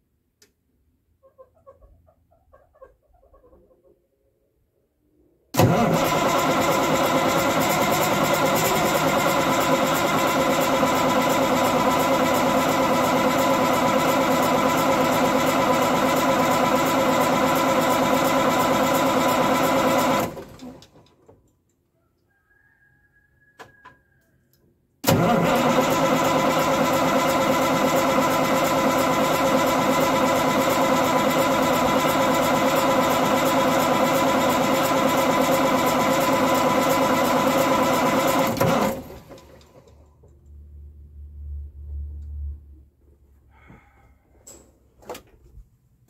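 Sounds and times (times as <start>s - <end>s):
diesel engine cranking on starter: 5.5s - 21.1s, 25.0s - 40.4s.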